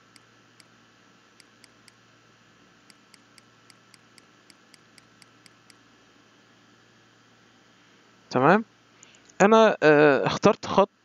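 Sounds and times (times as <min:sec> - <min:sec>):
steady low hum: 0:00.0 - 0:11.0
computer mouse clicking: 0:01.4 - 0:02.0, 0:02.9 - 0:05.8.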